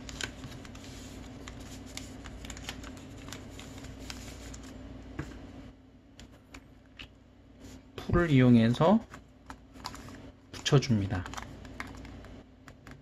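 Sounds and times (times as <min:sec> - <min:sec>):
paper crinkling and rustling: 0:00.0 - 0:04.8, 0:09.1 - 0:12.3.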